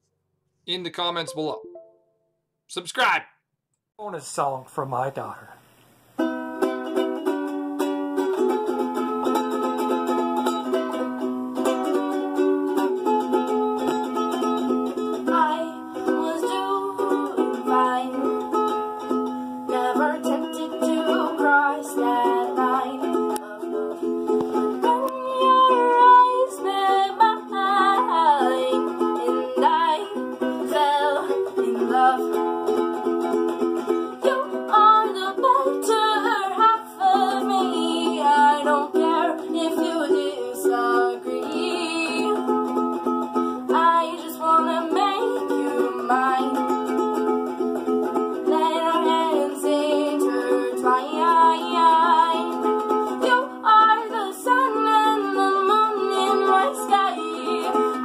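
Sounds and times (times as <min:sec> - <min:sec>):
strummed ukulele: 0:06.2 - 0:58.0
girl singing: 0:15.2 - 0:33.4, 0:34.1 - 0:42.8, 0:43.6 - 0:47.3, 0:48.3 - 0:58.0.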